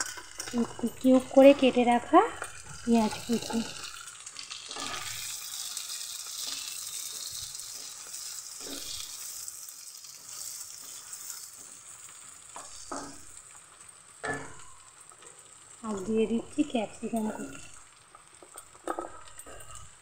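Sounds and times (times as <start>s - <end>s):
wooden spatula scraping a pan: 0.0s - 9.4s, 10.0s - 13.5s
vegetables sizzling in hot oil: 0.0s - 20.0s.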